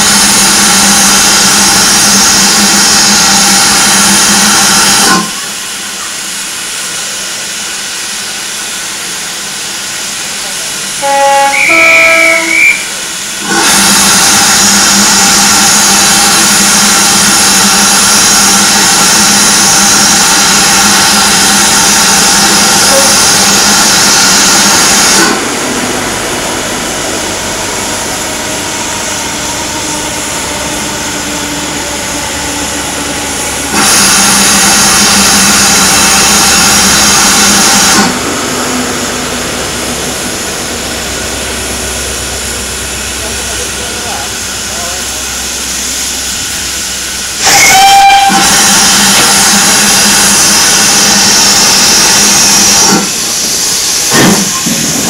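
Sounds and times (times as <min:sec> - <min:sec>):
locomotive letting off steam: 0:00.0 - 0:55.0.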